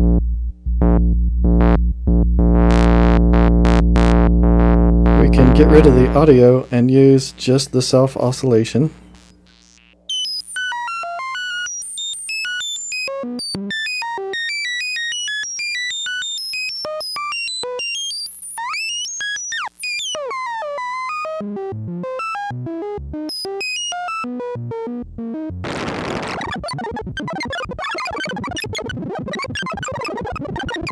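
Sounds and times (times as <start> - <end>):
synthesizer filter bleeps: 9.1 - 25.3, 26.2 - 30.9.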